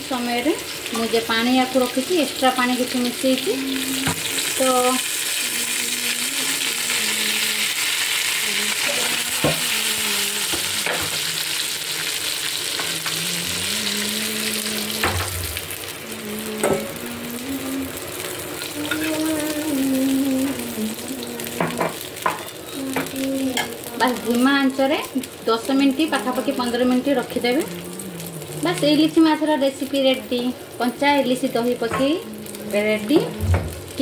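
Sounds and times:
fish sizzling in oil: 0.0 - 34.0.

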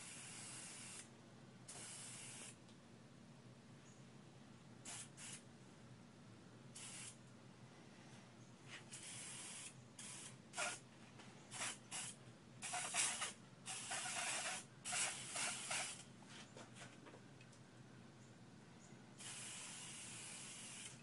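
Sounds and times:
spray bottle hissing bursts: 0.0 - 1.1, 1.7 - 2.6, 4.9 - 5.4, 6.8 - 7.2, 8.9 - 10.8, 11.5 - 16.0, 19.2 - 21.0.

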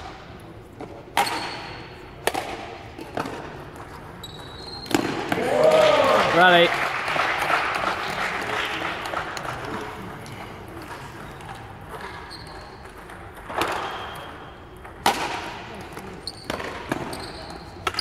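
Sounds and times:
echoing sports hall hubbub: 0.0 - 18.0
racket striking shuttlecock: 1.1 - 3.5, 4.9 - 5.4.

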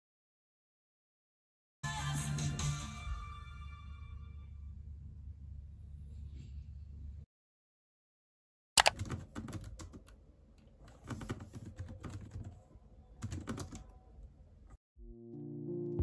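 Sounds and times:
keyboard typing clicks: 8.8 - 10.2.

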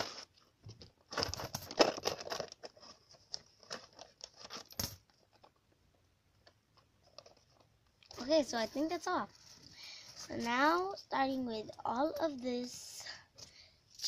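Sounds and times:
paper crinkling and rustling: 1.1 - 5.5.

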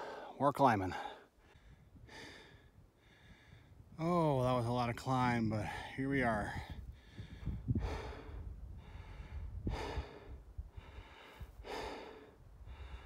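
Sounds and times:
person breathing hard: 0.0 - 0.4, 1.0 - 3.7, 6.8 - 13.0.

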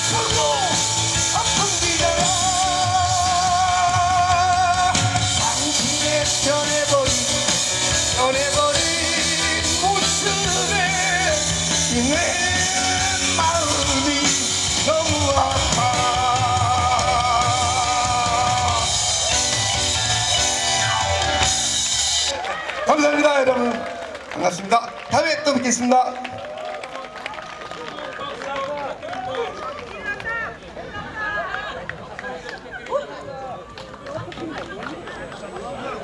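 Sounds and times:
man singing with vibrato: 0.0 - 19.5
backing music with drums: 0.0 - 22.4.

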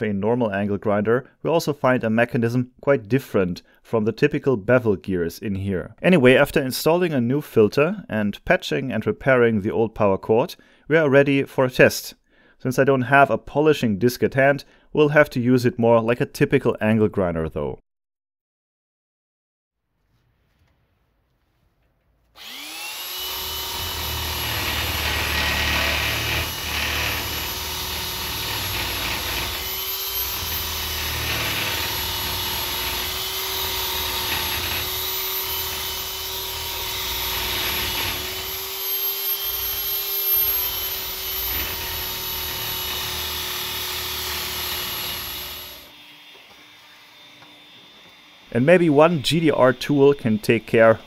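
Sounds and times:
polishing machine motor whine: 22.4 - 24.0, 38.0 - 41.8, 45.6 - 50.7.

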